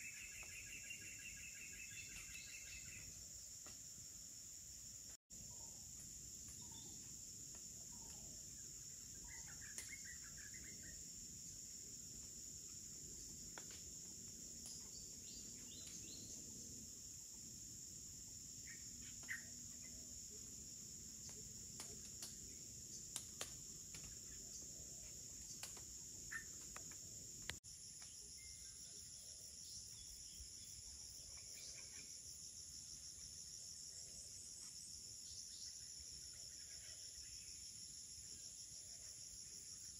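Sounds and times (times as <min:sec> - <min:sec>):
faint bird chirps: 0:00.0 - 0:03.2, 0:07.9 - 0:11.1, 0:26.2 - 0:26.6
higher insect drone: 0:00.0 - 0:39.9.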